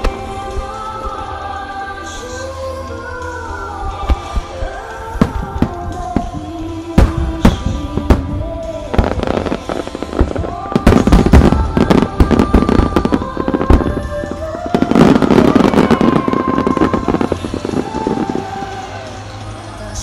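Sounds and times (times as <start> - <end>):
music: 0.0 - 20.0
fireworks bursting: 4.0 - 19.8.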